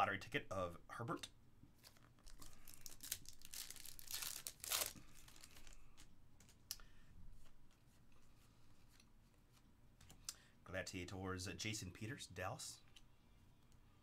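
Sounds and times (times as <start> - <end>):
foil wrapper tearing and crinkling: 2.2 - 5.8.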